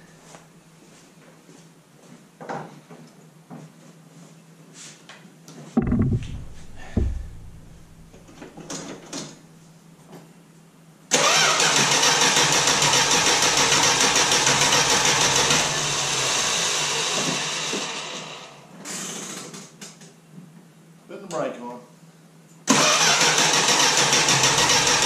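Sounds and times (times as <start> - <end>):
starter cranking engine: 11.1 - 15.8, 22.7 - 25.0.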